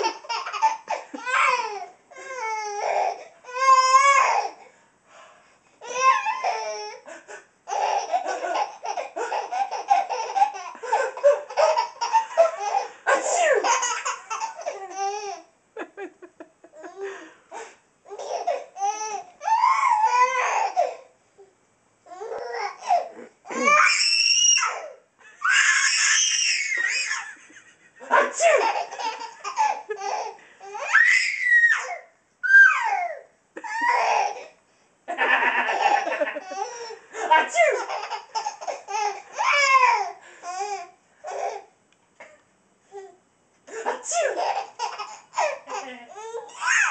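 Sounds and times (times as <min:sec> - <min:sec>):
baby laughing hysterically: 0:00.0 - 0:01.8, 0:07.7 - 0:17.0, 0:22.8 - 0:24.7, 0:25.3 - 0:31.8, 0:33.6 - 0:34.5, 0:35.1 - 0:41.6, 0:44.1 - 0:46.9
baby squealing: 0:18.1 - 0:20.8, 0:22.2 - 0:27.3, 0:30.8 - 0:34.4, 0:37.5 - 0:40.1, 0:44.1 - 0:46.9.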